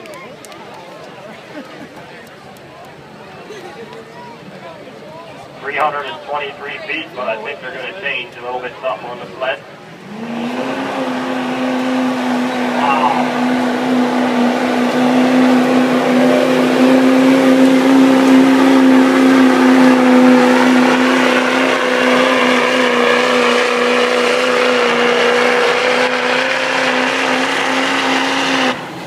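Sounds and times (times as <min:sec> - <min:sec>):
diesel truck engine at full throttle: 0:05.1 - 0:29.0.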